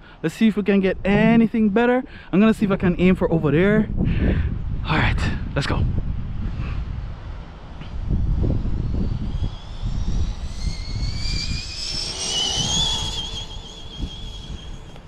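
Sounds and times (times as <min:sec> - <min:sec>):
low rumble: 0:05.9 - 0:15.0
electric motor whine: 0:07.9 - 0:15.0.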